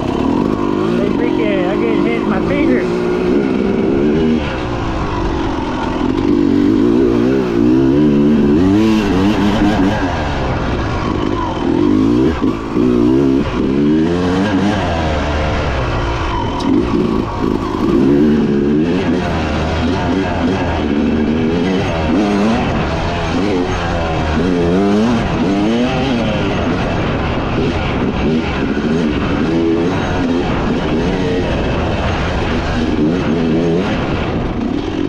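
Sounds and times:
dirt bike engine revving: 0.0s - 35.0s.

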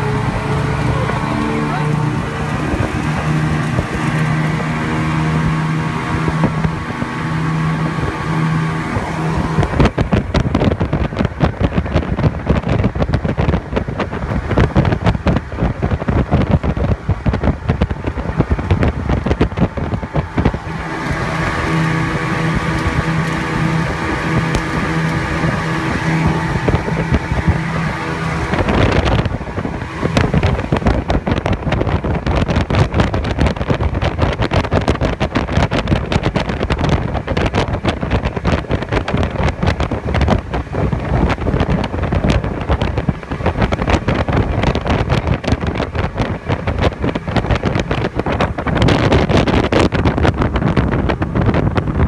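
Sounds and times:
outboard motor humming: 0.0s - 52.0s
wind buffeting microphone: 0.0s - 52.0s.

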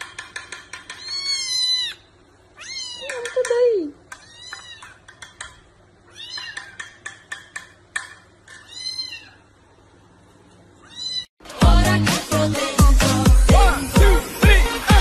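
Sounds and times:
kitten meowing: 1.0s - 3.2s, 4.2s - 5.0s, 6.1s - 6.8s, 8.7s - 9.4s, 10.8s - 11.3s
music: 11.4s - 15.0s.

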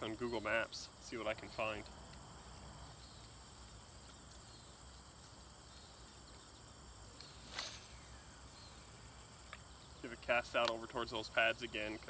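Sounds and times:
insects chirping: 0.0s - 12.0s
fishing rod swish: 7.4s - 8.1s.

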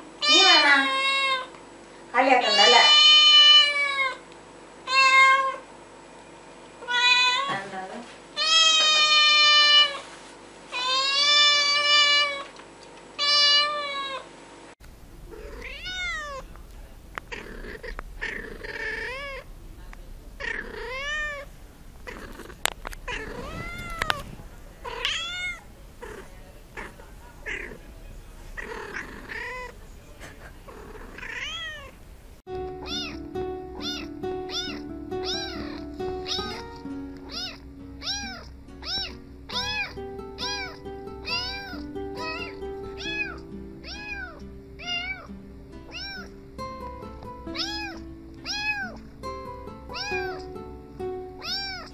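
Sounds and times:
cat meowing: 0.2s - 1.5s, 2.4s - 4.2s, 4.9s - 5.6s, 6.8s - 7.6s, 8.4s - 10.0s, 10.7s - 12.5s, 13.2s - 14.2s, 15.3s - 16.6s, 17.2s - 19.5s, 20.4s - 27.8s, 28.5s - 29.8s, 30.7s - 32.0s, 32.8s - 45.3s, 45.9s - 46.3s, 47.5s - 49.1s, 49.9s - 50.5s, 51.4s - 51.9s
background music: 32.5s - 51.9s.

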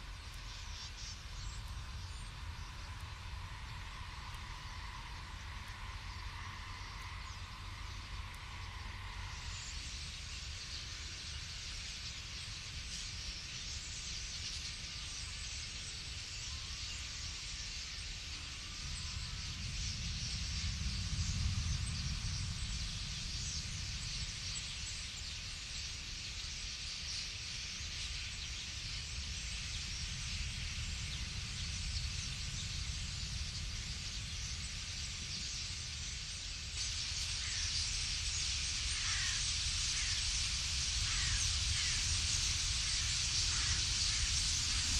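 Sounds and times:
starling flock chattering: 36.8s - 44.9s.

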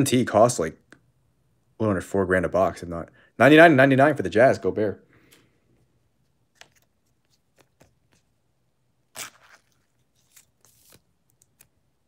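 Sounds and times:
card packaging crinkling: 9.2s - 11.8s.

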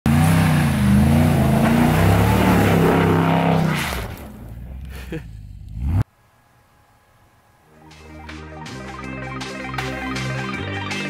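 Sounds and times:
truck engine revving: 0.0s - 6.1s.

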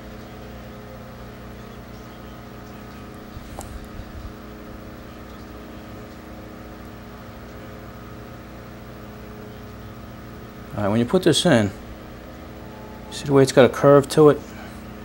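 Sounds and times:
machine motor humming: 0.0s - 15.0s.

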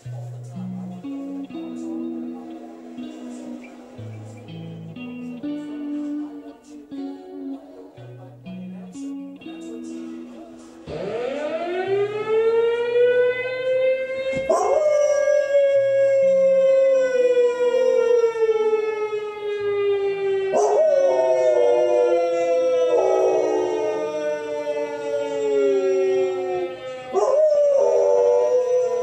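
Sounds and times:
dog howling: 14.4s - 18.5s, 20.5s - 29.0s.

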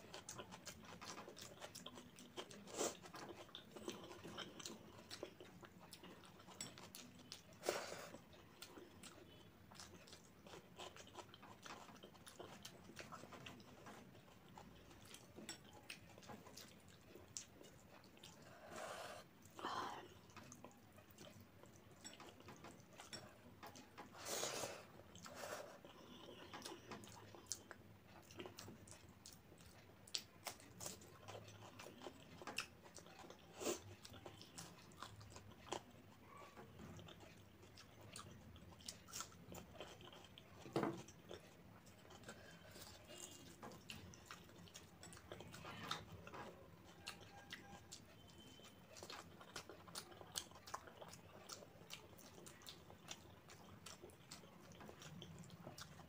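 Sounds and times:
wet chewing and mouth smacks: 0.0s - 56.0s.

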